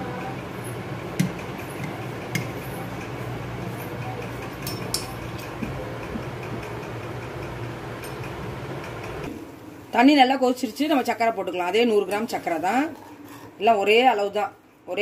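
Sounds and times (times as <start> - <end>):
steady low hum: 0.0 - 11.5
metal spoon tapping aluminium mould: 1.2 - 2.6.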